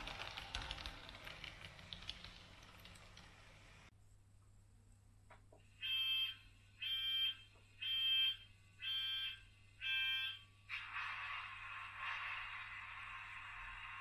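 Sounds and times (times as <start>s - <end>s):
electronic warning beeps: 5.8s - 10.4s
steady hiss: 10.7s - 14.0s.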